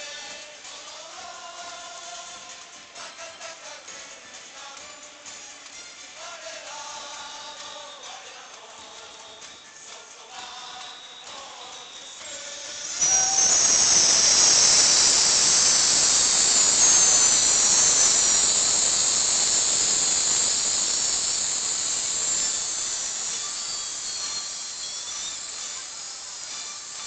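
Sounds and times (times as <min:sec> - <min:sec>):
rocket balloons whistling: 0:10.5 - 0:27.0.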